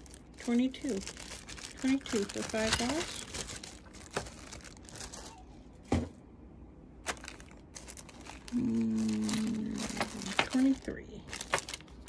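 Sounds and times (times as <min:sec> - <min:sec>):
plastic bags crinkling: 0:00.0 - 0:05.5, 0:07.0 - 0:12.0
steady hum: 0:00.0 - 0:12.0.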